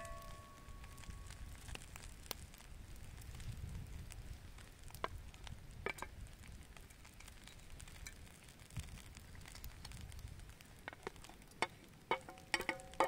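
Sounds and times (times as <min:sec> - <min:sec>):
food sizzling in a pan: 0:00.0 - 0:01.8.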